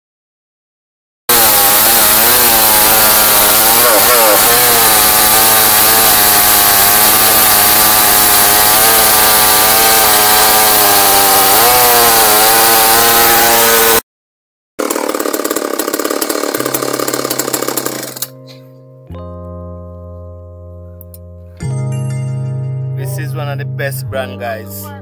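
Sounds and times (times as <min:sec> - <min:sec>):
chainsaw cutting through log: 0:01.3 - 0:14.0, 0:14.8 - 0:18.4.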